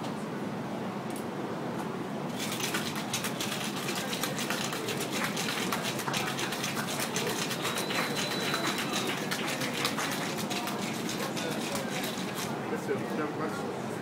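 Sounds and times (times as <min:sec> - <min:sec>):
ice rattling in cocktail shaker: 0:02.3 - 0:12.5.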